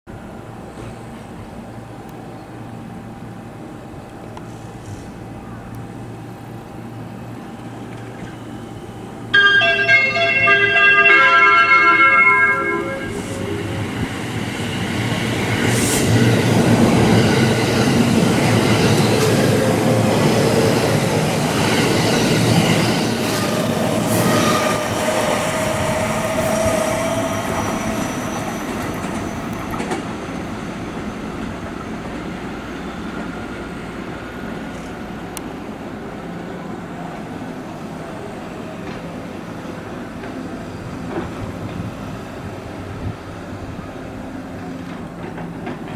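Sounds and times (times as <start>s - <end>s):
electric train passing: 0.1s - 45.9s
rising whine: 9.4s - 14.7s.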